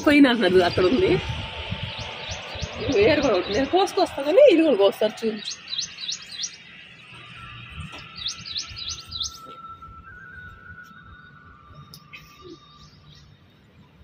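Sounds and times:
bird chirping: 0.0 - 14.0
thin steady high tone: 0.0 - 14.0.

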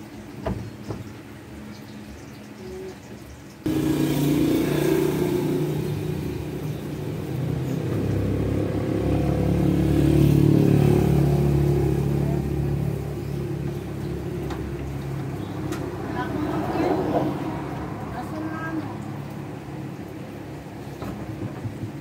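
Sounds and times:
motor engine running: 3.7 - 15.6.

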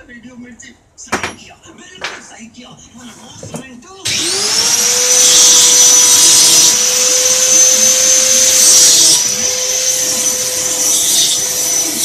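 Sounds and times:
small motor whining: 4.1 - 12.0.

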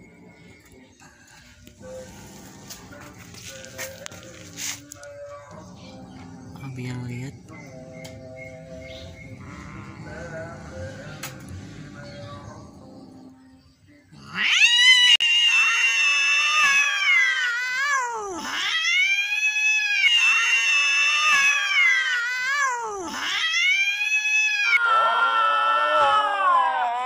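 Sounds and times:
cat yowling: 14.2 - 27.0.

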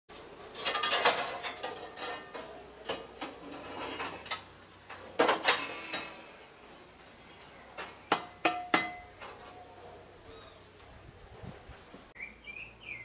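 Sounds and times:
scrap metal clanking and scraping: 0.1 - 9.7.

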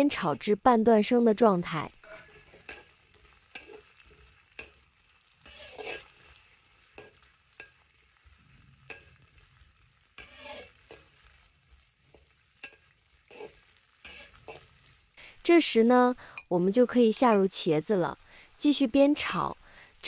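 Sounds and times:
peppers sizzling in oil: 0.0 - 20.0
metal spatula scraping a wok: 1.9 - 15.2.

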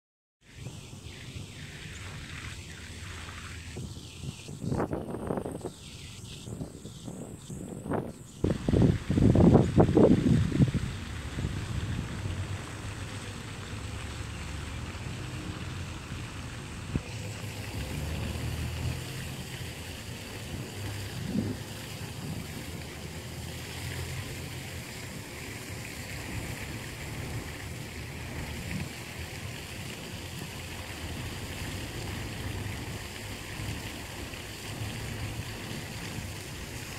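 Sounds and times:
low outdoor rumble: 8.5 - 36.9.

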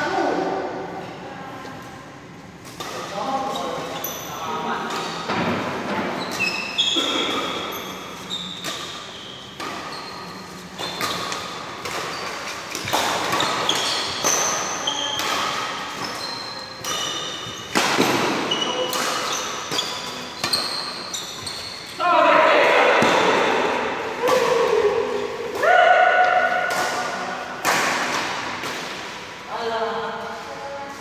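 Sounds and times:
shoes squeaking on court: 6.0 - 22.0
rackets hitting shuttlecock: 10.7 - 21.1, 26.2 - 29.2.

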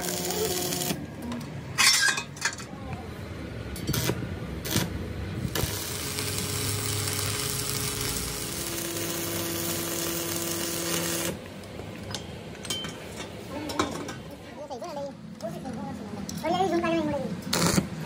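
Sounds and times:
arc welding crackle: 0.0 - 1.1, 3.9 - 11.4, 17.5 - 17.9.

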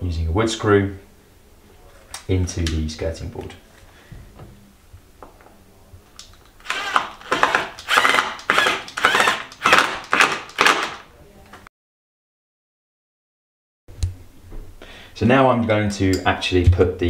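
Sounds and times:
cordless drill pulsing: 6.6 - 11.0.

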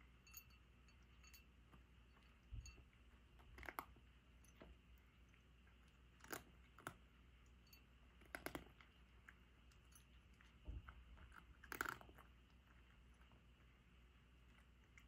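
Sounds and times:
cat crunching dry kibble: 3.2 - 7.1, 8.1 - 15.0.

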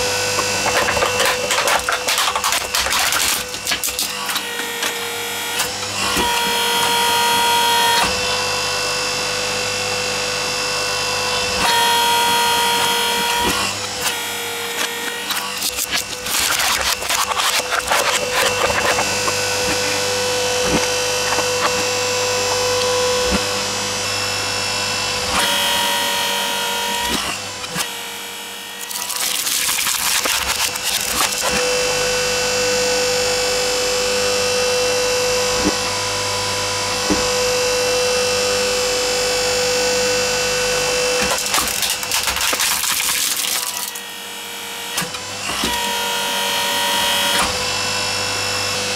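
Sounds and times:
hydraulic press motor whine: 0.0 - 48.9
plastic cracking and snapping: 41.2 - 44.0.

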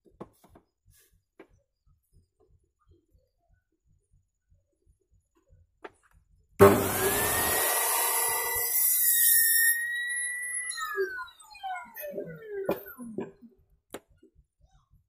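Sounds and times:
circular saw motor whine: 6.6 - 13.2.

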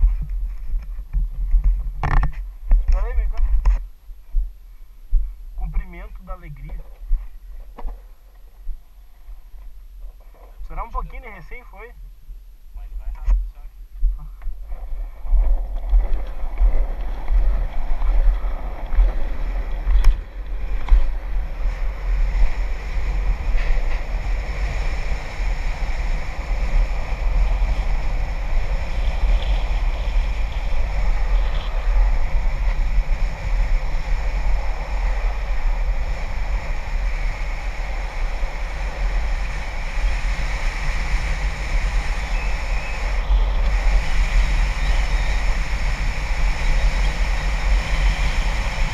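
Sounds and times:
wind buffeting microphone: 0.0 - 48.9
wheels rolling on asphalt: 14.4 - 48.9.

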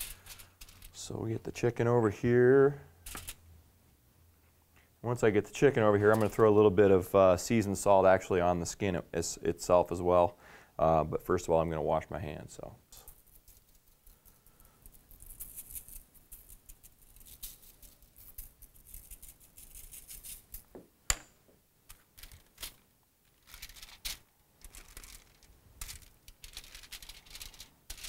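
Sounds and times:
crinkling foil: 0.0 - 1.0, 13.0 - 20.6, 21.9 - 28.0.

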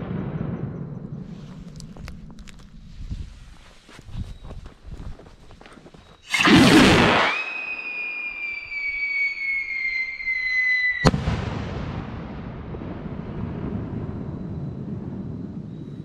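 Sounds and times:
low rumble: 0.0 - 3.7
rocket whistling: 6.1 - 11.4
firework bang: 6.3 - 15.6.

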